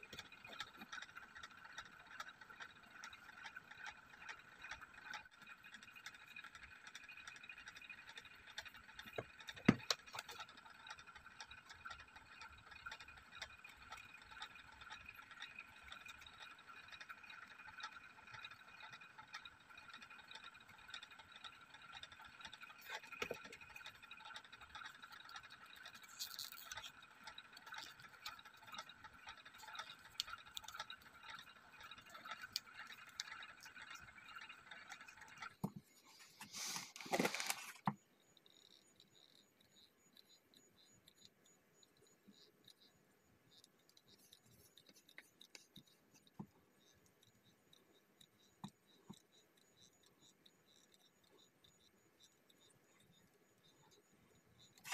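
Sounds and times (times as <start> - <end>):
handling of cardboard pieces: 35.7 - 37.9.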